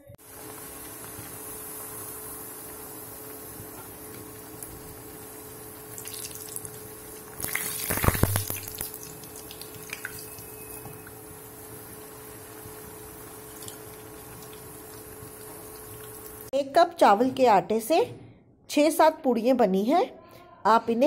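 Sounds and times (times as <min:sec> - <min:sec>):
oil sizzling and crackling: 0:00.1 - 0:16.5.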